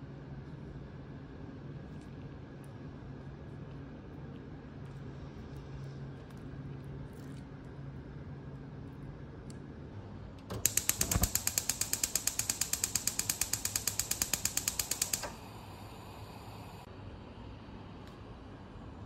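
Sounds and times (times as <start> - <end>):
gas flame hissing: 10.5 - 16.9
stove igniter clicking rapidly: 10.6 - 15.5.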